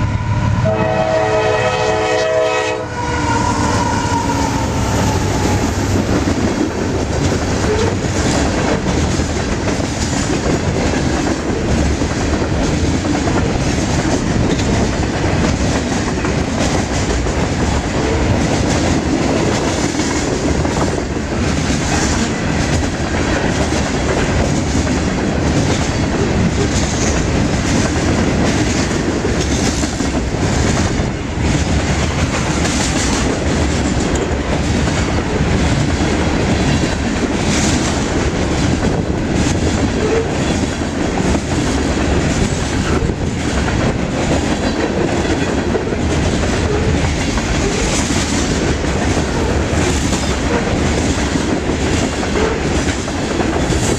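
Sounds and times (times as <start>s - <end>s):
train wheels rumbling on rails: 0.0s - 53.9s.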